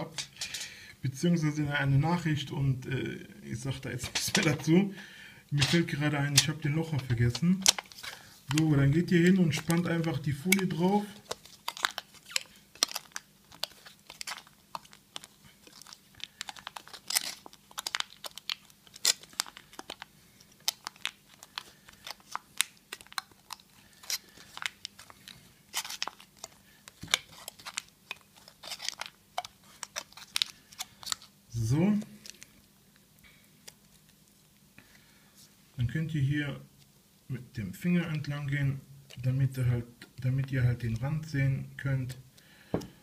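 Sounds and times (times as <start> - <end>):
aluminium foil crinkling: 5.6 - 32.7.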